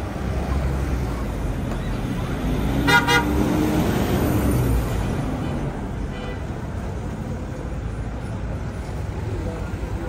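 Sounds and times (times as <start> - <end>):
street traffic rumble: 0.0 - 10.0
high-pitched vehicle horn toots: 2.8 - 3.4.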